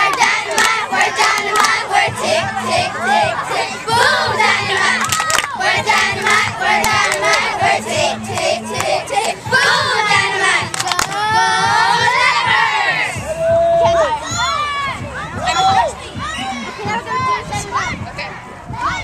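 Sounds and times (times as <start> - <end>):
girls chanting a cheer: 0.0 - 13.2
hand claps: 0.1 - 1.8, 5.0 - 5.6, 6.2 - 7.5, 10.6 - 11.2.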